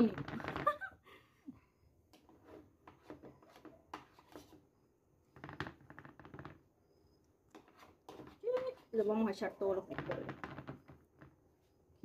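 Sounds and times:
spoon scraping ceramic bowl: 0:07.5 - 0:09.3.

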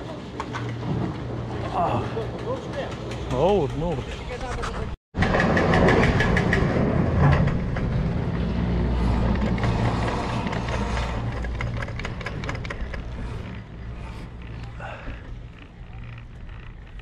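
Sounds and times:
chairlift machinery rumbling: 0:00.0 - 0:17.0.

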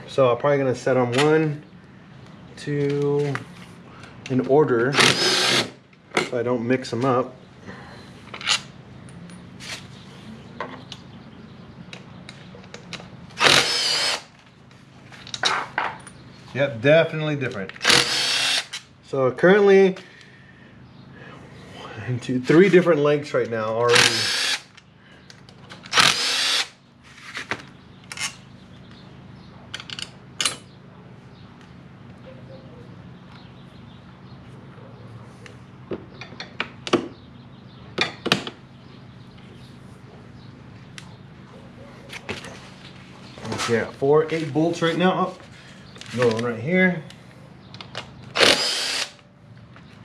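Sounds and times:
cordless drill spinning: 0:05.0 - 0:05.7, 0:13.4 - 0:14.2, 0:17.8 - 0:18.8, 0:24.0 - 0:24.7, 0:25.9 - 0:26.7, 0:48.4 - 0:49.2.

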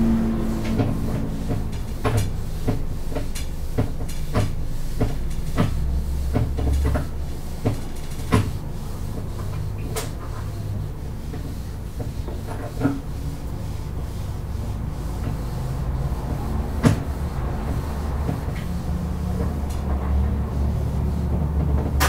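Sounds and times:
low hum: 0:00.0 - 0:02.5
marker writing on whiteboard: 0:00.7 - 0:22.0.

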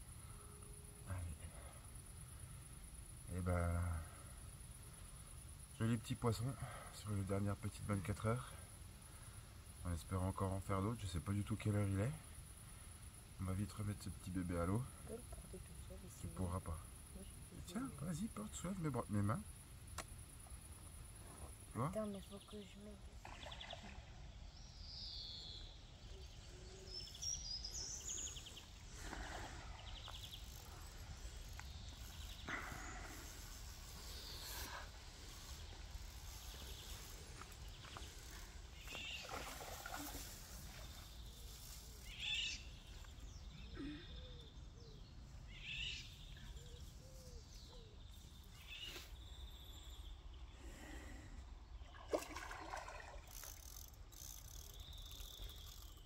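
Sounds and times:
short bird calls: 0:41.4 - 0:49.3.

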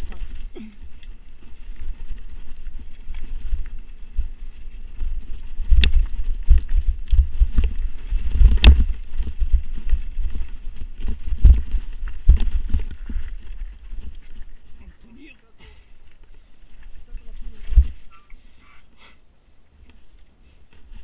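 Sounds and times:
wind rumble on microphone: 0:00.0 - 0:15.1, 0:16.1 - 0:18.2
bike knocks and rattles: 0:04.9 - 0:14.2.

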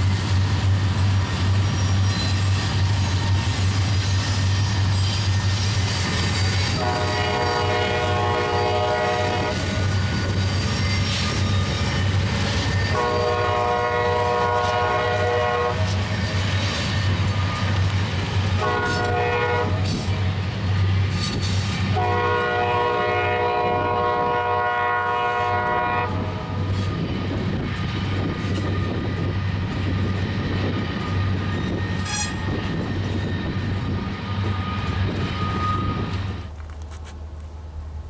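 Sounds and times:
locomotive air horn blasts: 0:06.7 - 0:09.8, 0:12.9 - 0:16.0, 0:18.6 - 0:20.0, 0:21.9 - 0:26.4, 0:32.0 - 0:32.4
wind buffeting microphone: 0:25.7 - 0:36.5.

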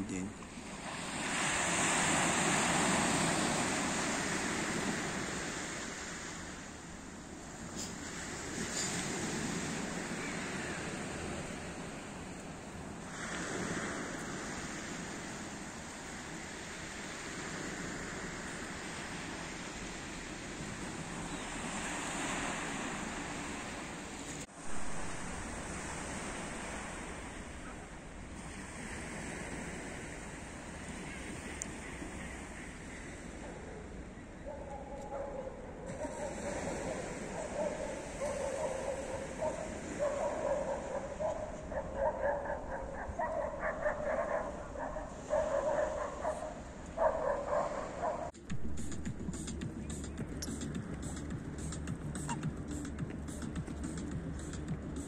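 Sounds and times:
surf washing onto stony shore: 0:00.0 - 0:33.4, 0:35.9 - 0:41.7.

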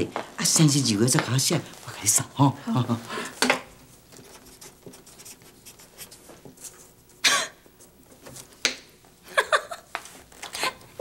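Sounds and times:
person coughing: 0:07.2 - 0:07.6.

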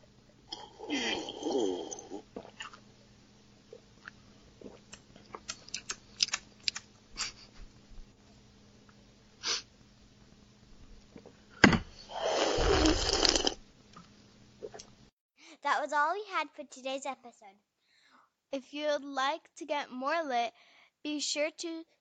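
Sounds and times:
wet mouth clicks and smacks: 0:04.0 - 0:07.4
breathy puff: 0:09.4 - 0:09.7, 0:11.8 - 0:13.5.

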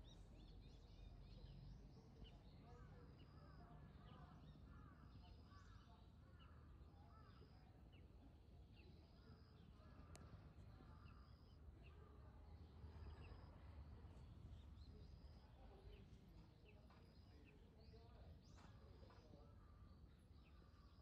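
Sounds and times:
faint distant bird chirps: 0:00.0 - 0:21.0
faint click: 0:10.0 - 0:10.4.

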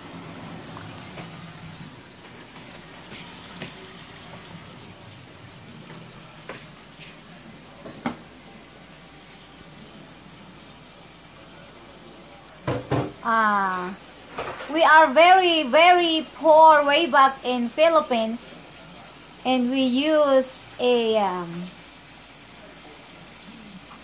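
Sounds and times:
dishes clinking: 0:07.8 - 0:08.4
tap running into sink: 0:12.6 - 0:13.2.

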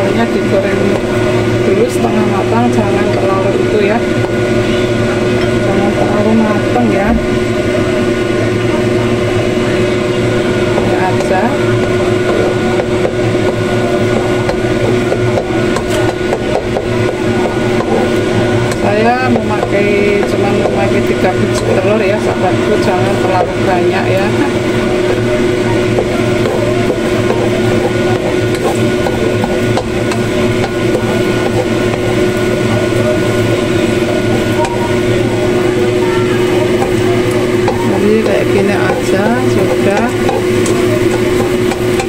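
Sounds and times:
mechanical hum: 0:00.0 - 0:42.0
eggs frying in a wok: 0:07.3 - 0:42.0
spatula scraping and tapping: 0:10.7 - 0:23.6, 0:24.2 - 0:42.0.

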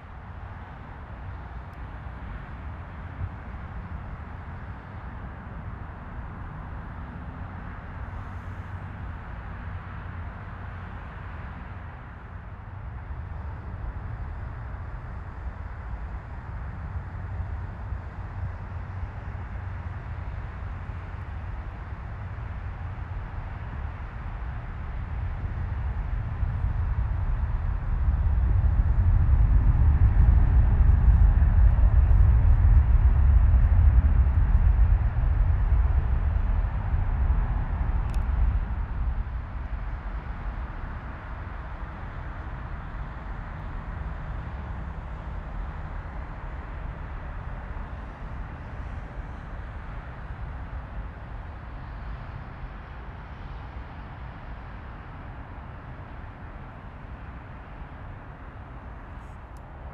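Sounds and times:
jet engines rumbling with hiss: 0:00.4 - 0:59.9
jet engines rumbling: 0:23.1 - 0:51.4.

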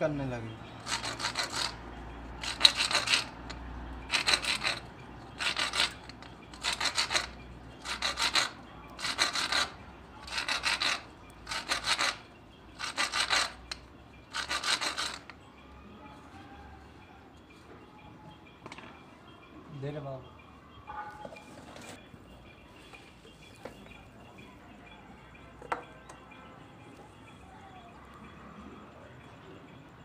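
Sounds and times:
plastic pipe scraping against plaster: 0:00.8 - 0:01.8, 0:02.4 - 0:12.2, 0:12.8 - 0:15.4.

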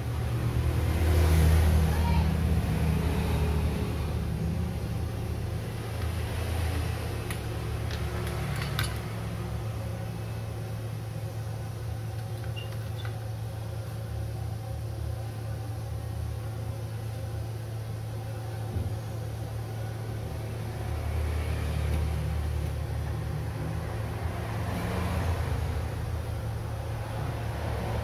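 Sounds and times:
low machine hum: 0:00.0 - 0:28.0.

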